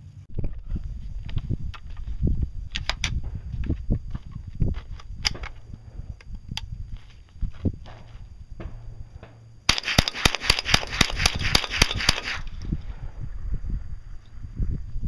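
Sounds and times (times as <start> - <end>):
semi-automatic rifle rapid shots: 9.7 - 12.6.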